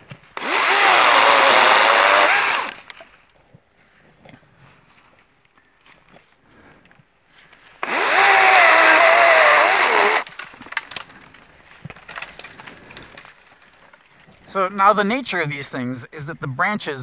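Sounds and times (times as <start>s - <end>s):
branches cracking and rustling: 0.0s - 6.4s, 7.3s - 14.5s
electric chainsaw cutting: 0.4s - 2.9s, 7.8s - 10.3s.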